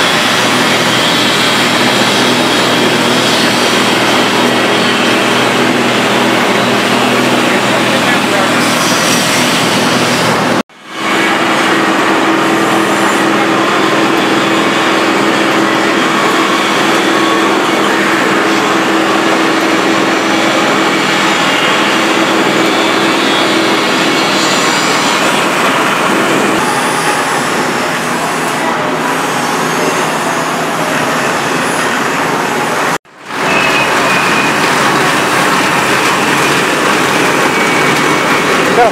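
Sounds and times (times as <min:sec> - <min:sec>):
rotating drum sieve running: 0:33.1 - 0:38.9.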